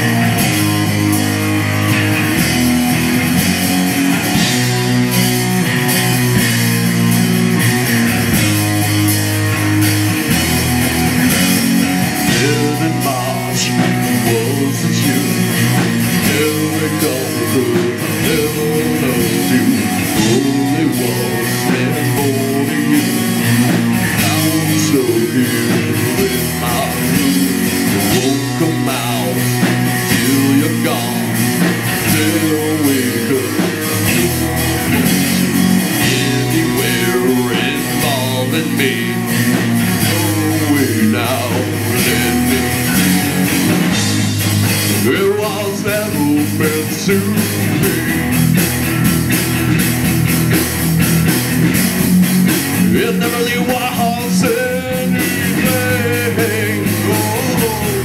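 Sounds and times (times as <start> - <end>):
live rock band playing: 0.0 - 58.0
man singing into microphone: 12.3 - 34.4, 36.0 - 43.4, 45.0 - 48.3, 52.9 - 58.0.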